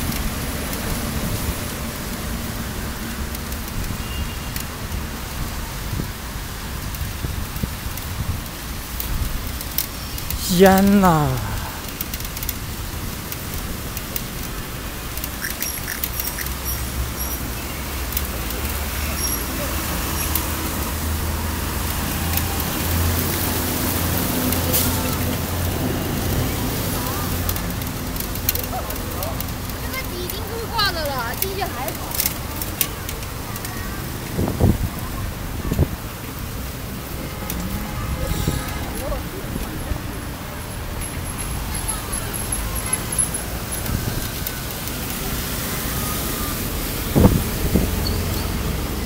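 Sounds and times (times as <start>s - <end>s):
wind buffeting microphone: 47.0s - 48.0s.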